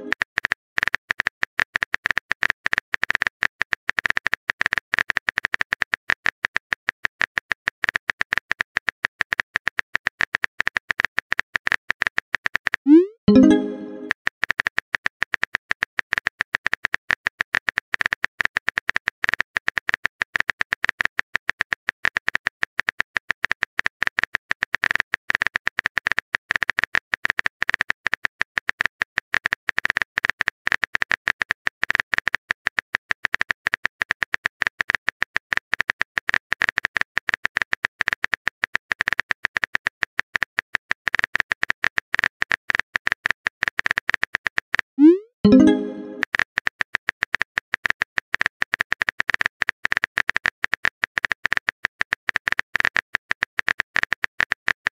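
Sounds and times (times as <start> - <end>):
keyboard typing clicks: 12.9 - 14.1, 45.0 - 46.2.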